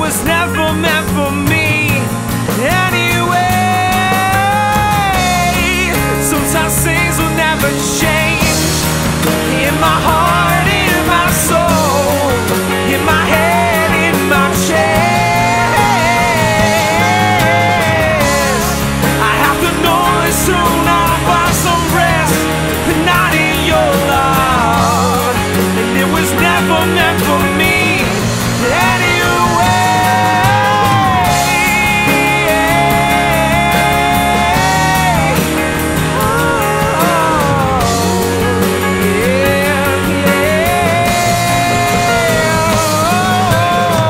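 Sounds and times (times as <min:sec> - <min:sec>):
indie rock music: 0:00.0 - 0:44.0.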